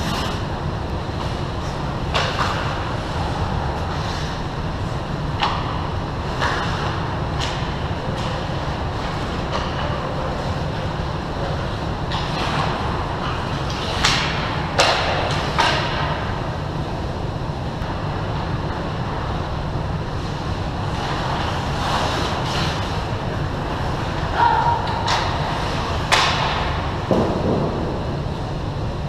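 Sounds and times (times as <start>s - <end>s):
skate blades scraping ice: 0.0s - 0.6s, 20.2s - 23.0s
steady low rumble: 0.0s - 29.0s.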